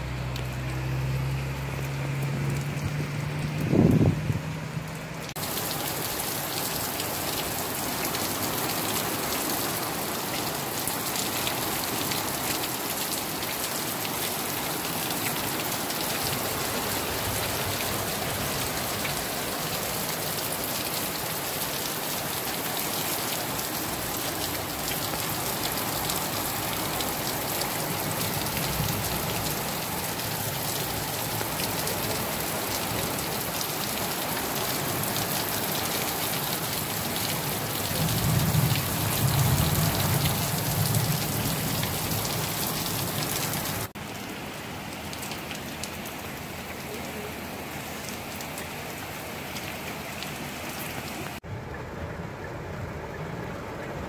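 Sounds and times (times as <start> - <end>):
heavy rain on pavement: 0.0 - 54.0.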